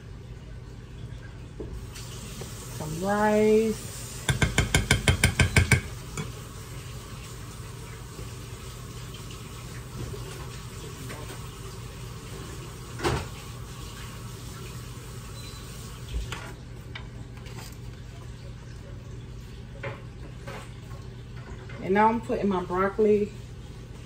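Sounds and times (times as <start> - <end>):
dishes and pots clattering: 4.3 - 6.4.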